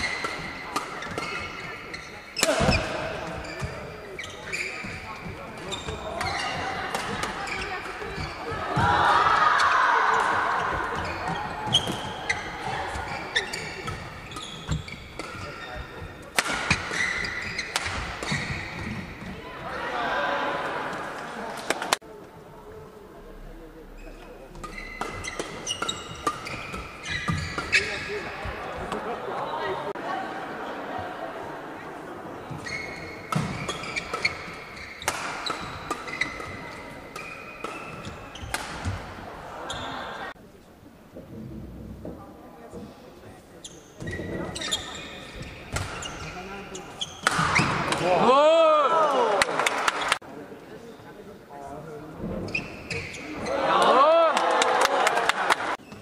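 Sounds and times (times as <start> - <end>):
shoes squeaking on court: 0.0 - 8.8, 10.1 - 19.4, 23.9 - 29.1, 32.4 - 40.4, 43.6 - 48.0, 52.4 - 53.6, 55.8 - 56.0
racket hitting shuttlecock: 0.0 - 19.3, 24.6 - 29.0, 33.2 - 39.2, 47.1 - 48.1
crowd cheering and calling out: 8.6 - 11.0, 19.6 - 22.0, 48.0 - 49.7, 53.5 - 55.8
racket striking shuttlecock: 47.2 - 48.1.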